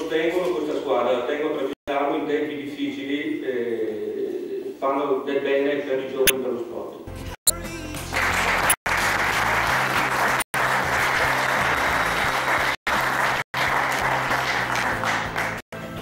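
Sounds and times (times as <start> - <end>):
background music: 7.1 - 16.0
audience applauding: 8.1 - 15.6.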